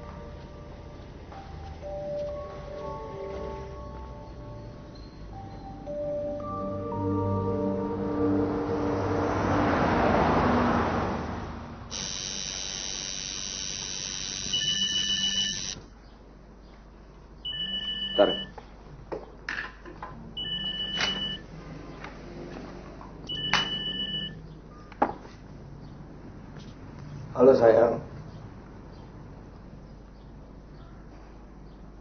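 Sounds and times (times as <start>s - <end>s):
steady tone: 3.6s - 10.4s, 11.9s - 15.8s
loud rushing noise: 7.9s - 11.8s
telephone two-tone rings: 11.9s - 15.8s.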